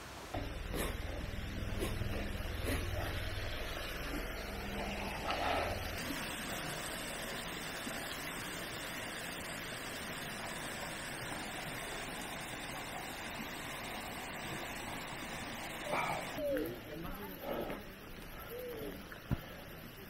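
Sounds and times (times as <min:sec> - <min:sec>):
low rumble: 0:00.4 - 0:06.4.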